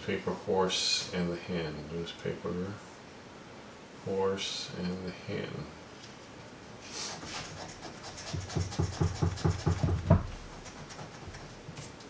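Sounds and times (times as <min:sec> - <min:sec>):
coin scratching lottery ticket: 0:07.2 - 0:11.6.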